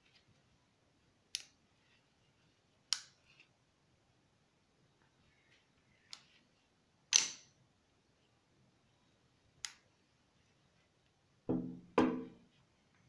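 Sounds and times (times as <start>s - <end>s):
dull knock with ringing tone: 11.5s - 12.4s.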